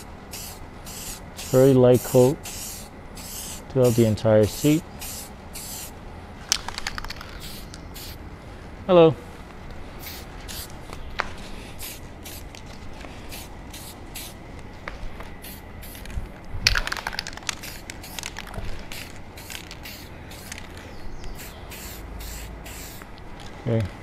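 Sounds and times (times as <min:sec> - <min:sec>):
spray can hissing: 0:00.0 - 0:05.9, 0:06.6 - 0:08.2, 0:10.0 - 0:10.7, 0:11.8 - 0:12.5, 0:13.3 - 0:14.4, 0:16.8 - 0:20.6, 0:21.3 - 0:23.1.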